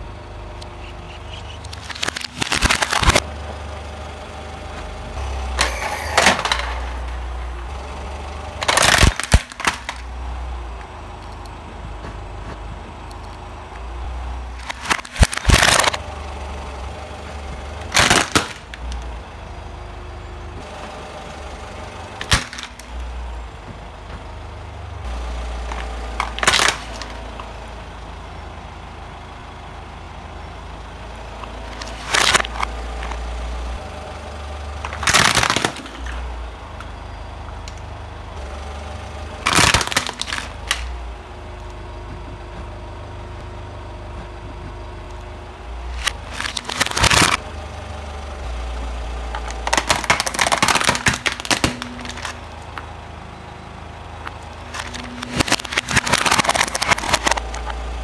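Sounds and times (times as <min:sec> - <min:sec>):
plastic toys cracking under tyre: 0:01.5 - 0:03.3, 0:05.6 - 0:07.2, 0:08.6 - 0:10.1, 0:14.5 - 0:16.0, 0:17.8 - 0:19.1, 0:22.2 - 0:23.0, 0:25.6 - 0:27.5, 0:31.5 - 0:33.2, 0:34.8 - 0:36.2, 0:39.4 - 0:41.0, 0:45.9 - 0:47.5, 0:49.3 - 0:52.9, 0:54.2 - 0:57.8.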